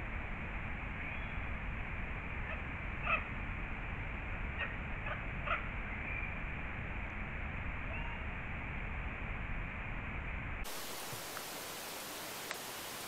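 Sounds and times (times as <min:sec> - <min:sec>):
low background hiss: 0:00.0 - 0:13.0
fox high calls: 0:02.4 - 0:03.3, 0:04.6 - 0:05.7.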